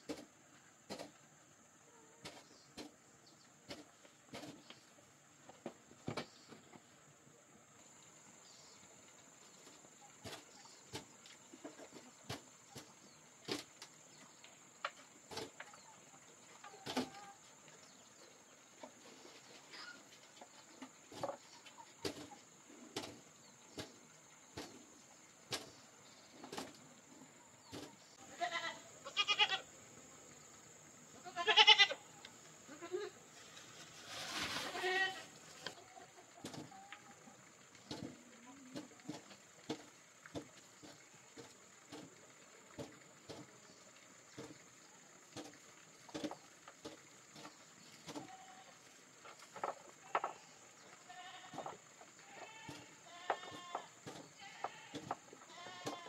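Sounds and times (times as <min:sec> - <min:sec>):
goat bleating: 0:28.2 - 0:29.7, 0:31.2 - 0:32.0, 0:32.7 - 0:33.2, 0:34.7 - 0:35.3, 0:51.0 - 0:56.0.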